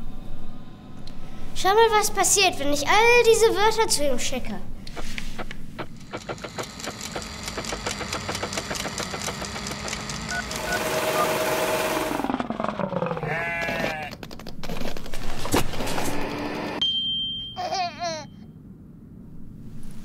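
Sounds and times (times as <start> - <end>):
steady hum: 0.0 - 3.8, 4.6 - 12.6
hissing whir: 4.9 - 12.8
rapid ticking clatter: 5.4 - 10.8
short wavering call: 10.3 - 12.2
falling whistle: 10.3 - 12.3.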